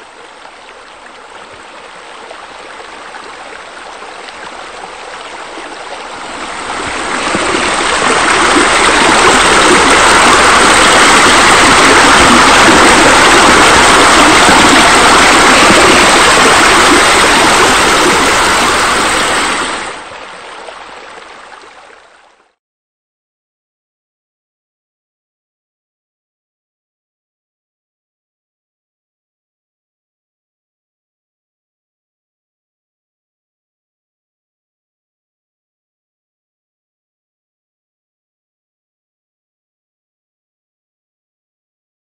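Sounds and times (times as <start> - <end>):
running splashing water: 0.4 - 22.3.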